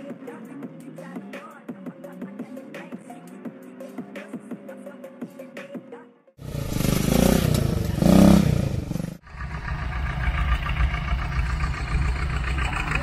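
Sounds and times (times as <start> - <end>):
engine low rumble: 6.4 - 13.0
engine revving loudly: 6.4 - 13.0.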